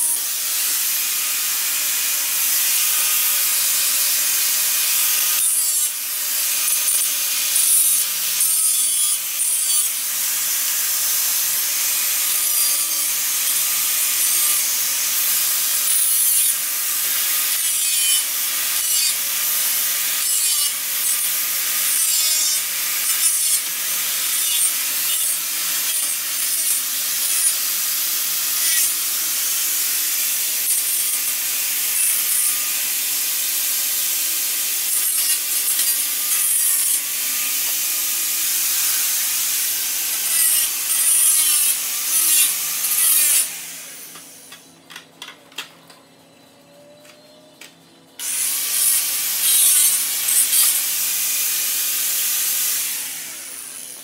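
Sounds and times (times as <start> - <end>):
angle grinder cutting metal: 0.0 - 44.7, 48.2 - 54.0.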